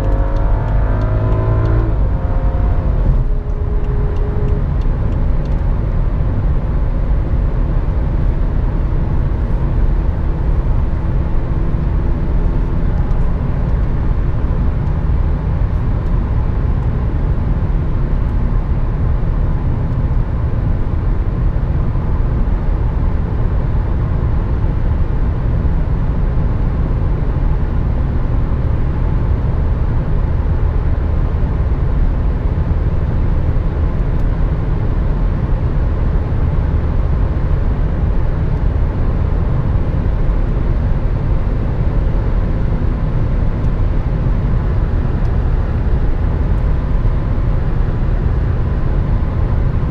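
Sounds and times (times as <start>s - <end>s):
faint engine hum: 0.0s - 49.9s.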